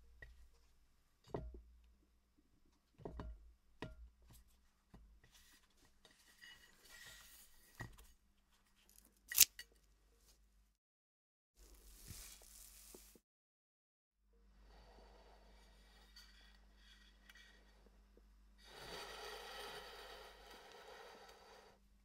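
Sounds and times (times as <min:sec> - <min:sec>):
kitchen scissors snipping: 0:09.3 - 0:09.6.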